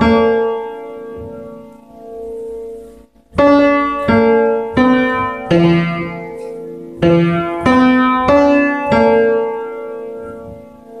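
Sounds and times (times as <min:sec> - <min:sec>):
upright piano played slowly: 0:00.0 - 0:11.0.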